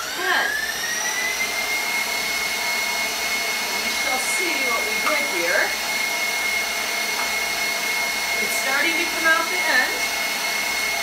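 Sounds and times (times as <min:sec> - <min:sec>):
stand mixer motor whining: 0:00.0 - 0:11.0.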